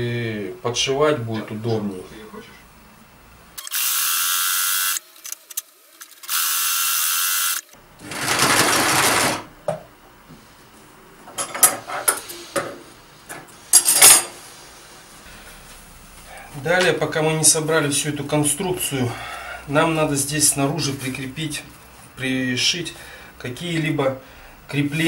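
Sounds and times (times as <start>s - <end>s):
sewing machine running: 6.3s - 9.5s.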